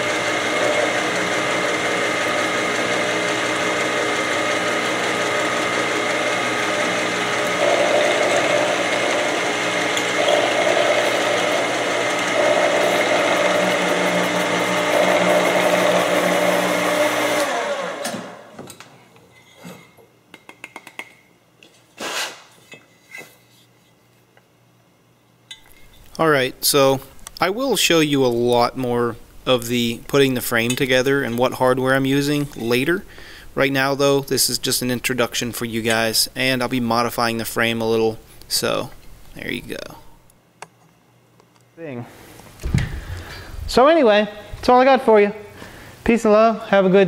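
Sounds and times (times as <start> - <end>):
end mill cutting metal: 0.0 - 18.4
milling machine whine: 0.0 - 18.6.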